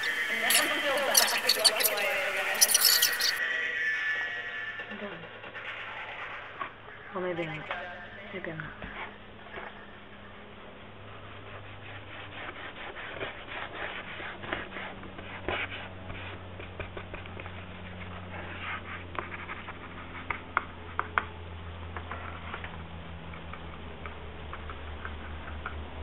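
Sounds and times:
brush scrubbing on paper: 0:00.0 - 0:03.4, 0:11.1 - 0:20.2.

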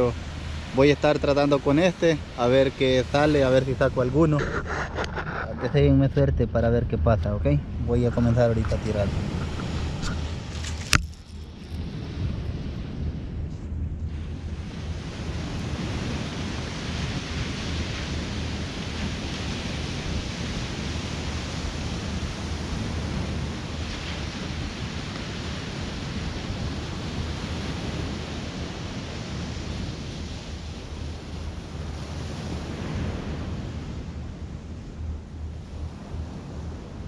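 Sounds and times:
surf breaking on beach: 0:00.0 - 0:06.3, 0:14.1 - 0:37.0
wind buffeting microphone: 0:00.0 - 0:37.0.

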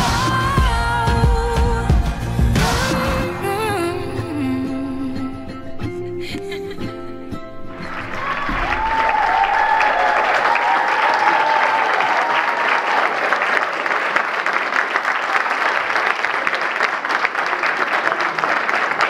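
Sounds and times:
song: 0:00.0 - 0:09.8
large audience applauding: 0:07.7 - 0:19.0
high drawn-out whoops: 0:08.0 - 0:13.2.

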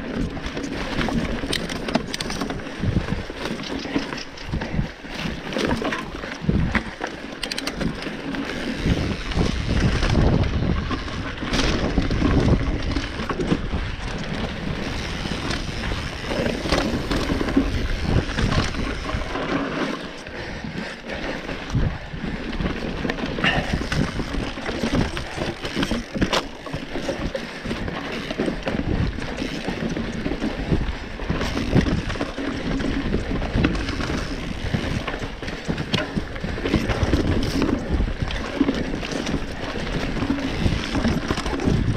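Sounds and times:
wind buffeting microphone: 0:00.0 - 0:19.6, 0:20.3 - 0:26.3, 0:26.9 - 0:41.9
bike knocks and rattles: 0:00.0 - 0:41.9
tyres rumbling on dirt: 0:07.7 - 0:20.1.

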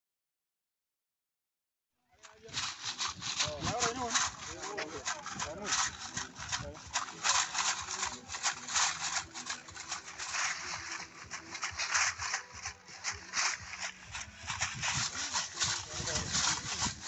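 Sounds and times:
bottle cap leg rattles jangling: 0:02.5 - 0:17.0.

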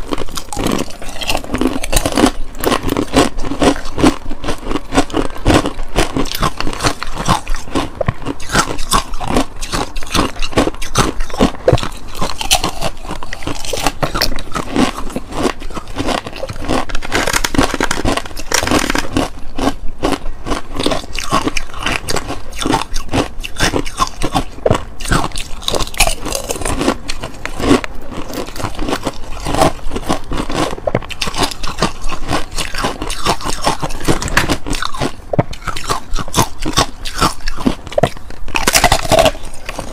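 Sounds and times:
teeth scraping ice: 0:00.0 - 0:39.9
ice being crunched: 0:25.2 - 0:39.9.

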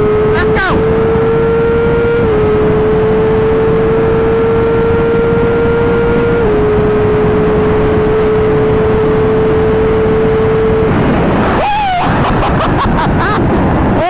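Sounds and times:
vehicle engine droning: 0:00.0 - 0:14.0
loud rushing noise: 0:10.8 - 0:14.0.

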